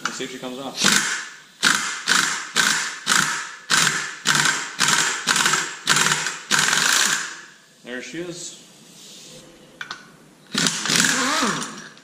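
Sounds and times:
air impact wrench bursts: 0:00.0 - 0:07.6, 0:10.5 - 0:12.0.

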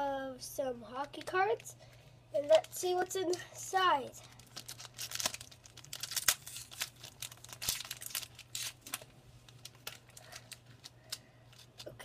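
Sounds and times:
wrapper tearing and crinkling: 0:04.2 - 0:12.0.

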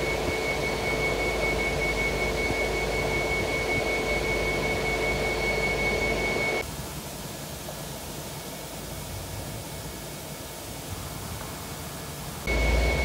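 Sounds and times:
crane engine whining and rumbling: 0:00.0 - 0:06.6, 0:12.5 - 0:13.0
steady hiss: 0:06.6 - 0:13.0.

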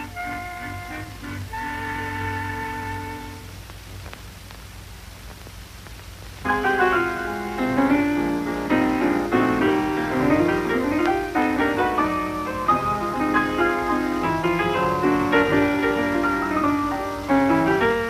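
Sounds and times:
piano playing quick runs: 0:06.5 - 0:18.0.

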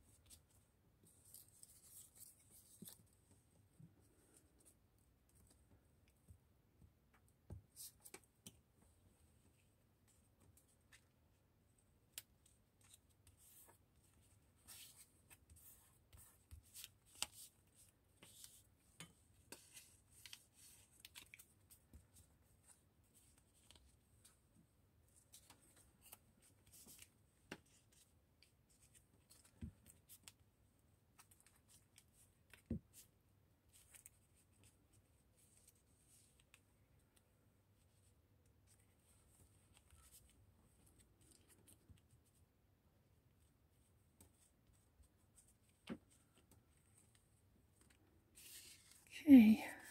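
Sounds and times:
paper rustling: 0:47.8 - 0:49.1.

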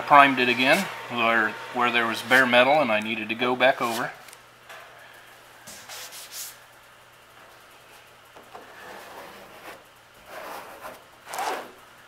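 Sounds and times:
gloved hand brushing metal: 0:03.8 - 0:04.2
plastic spreader scraping paper: 0:08.7 - 0:11.8.

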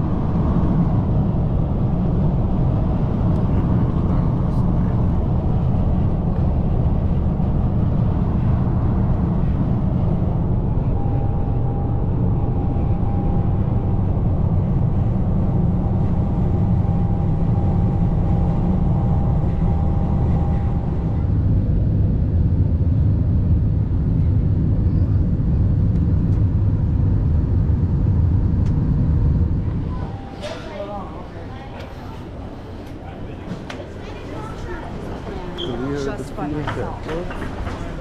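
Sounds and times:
thin steady whine: 0:00.0 - 0:21.5, 0:28.4 - 0:36.3
jet airliner cabin rumble: 0:00.0 - 0:38.0.

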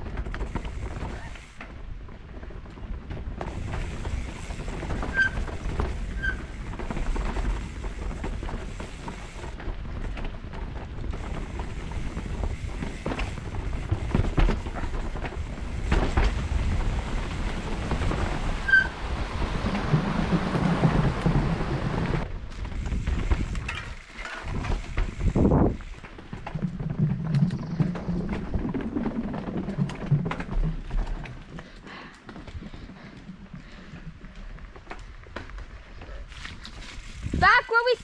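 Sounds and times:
bike rattling and knocking: 0:00.0 - 0:34.0
bike tyre and trail noise: 0:00.0 - 0:38.0
wind on microphone: 0:03.2 - 0:26.0, 0:36.5 - 0:37.7
high squeaks: 0:05.0 - 0:06.6.

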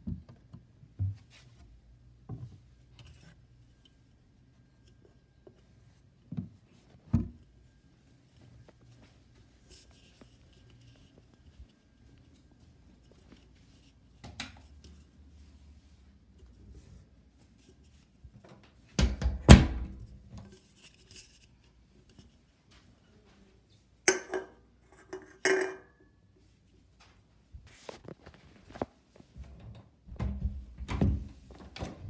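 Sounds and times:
glass bottle clinking: 0:24.1 - 0:24.6.

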